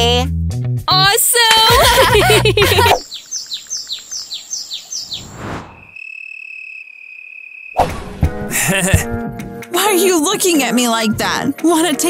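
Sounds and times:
music: 0.0 - 2.8, 7.9 - 12.0
quick falling chirps: 4.7 - 6.1
burst of noise: 5.2 - 6.0.

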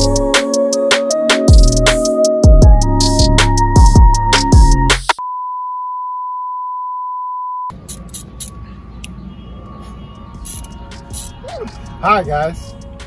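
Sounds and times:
music with punchy beat: 0.0 - 5.2.

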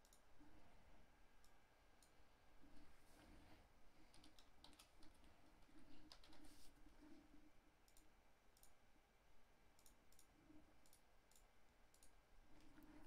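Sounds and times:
faint computer mouse clicks: 0.0 - 0.2, 4.1 - 5.3, 7.8 - 8.8, 9.8 - 13.0.

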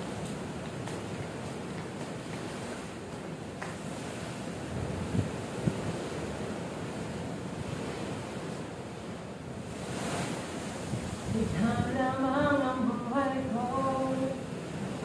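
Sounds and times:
wind buffeting microphone: 0.0 - 13.5
sea noise: 0.0 - 15.0
wind: 0.0 - 15.0
man singing slow tune: 11.4 - 14.4.

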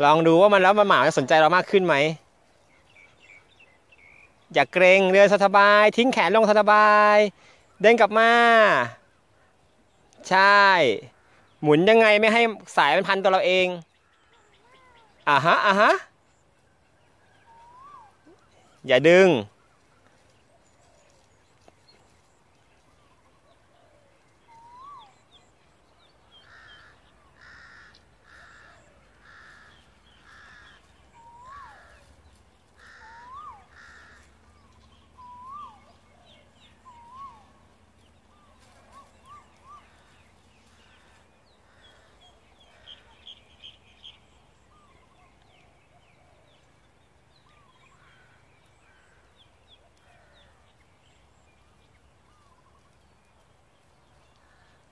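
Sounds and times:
harsh bird calls: 0.0 - 54.9
high bird chirps: 17.1 - 19.3, 24.4 - 29.0
whistled bird chirps: 17.3 - 18.8, 24.4 - 25.6, 31.1 - 31.8, 33.1 - 33.7, 34.6 - 37.6.

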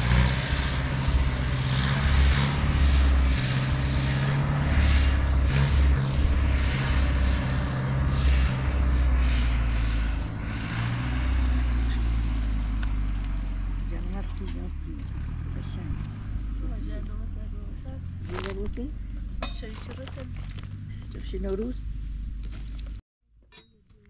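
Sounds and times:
rushing noise: 0.0 - 12.8
vehicle engine running: 0.0 - 23.0.

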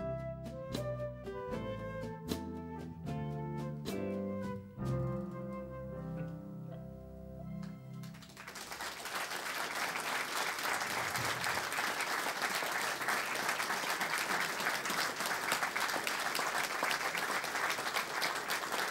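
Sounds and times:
audience applause: 8.0 - 18.9.

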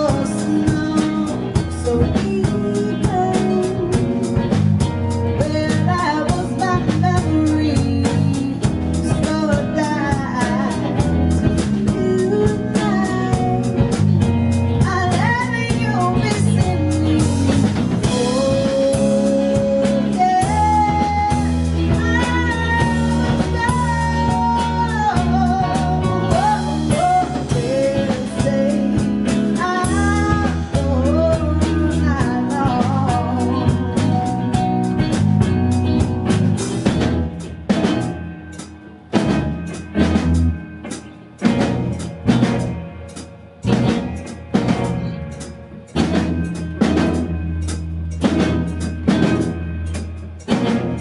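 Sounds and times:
woman singing with vibrato: 0.0 - 4.5, 5.3 - 13.9, 14.8 - 34.8
bass guitar: 0.0 - 51.0
electric guitars: 0.0 - 51.0.

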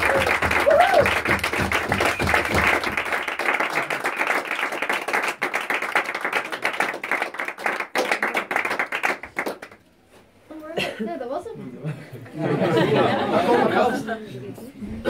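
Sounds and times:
audience clapping: 0.0 - 9.9.

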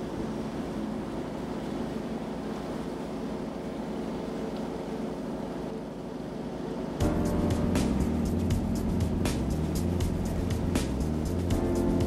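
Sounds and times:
ship diesel engine humming: 0.0 - 5.7, 7.0 - 12.0
steady tones: 7.0 - 12.0.

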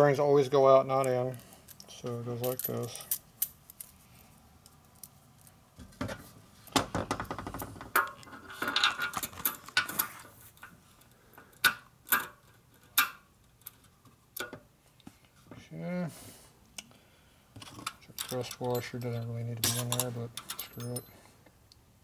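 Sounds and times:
small steel parts clicking: 4.6 - 5.6.

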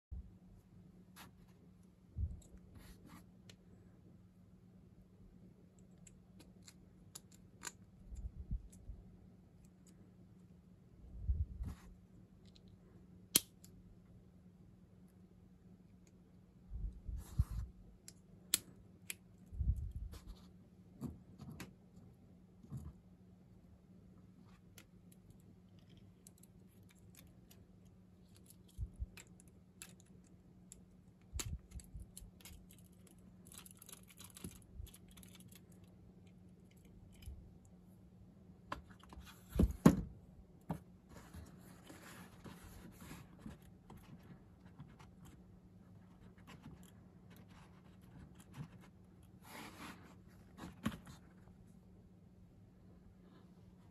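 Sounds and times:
faint low hum: 0.1 - 53.9
plastic parts clicking and scraping: 24.5 - 37.4.

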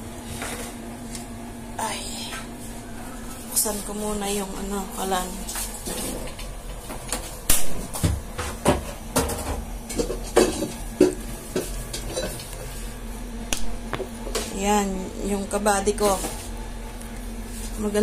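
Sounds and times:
pots knocking and clinking: 7.9 - 12.5.

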